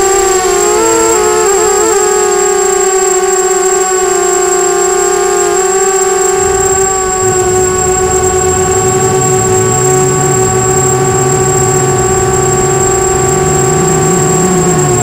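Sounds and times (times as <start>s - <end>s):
quadcopter motors whining: 0.0s - 15.0s
wind rumble on microphone: 6.2s - 15.0s.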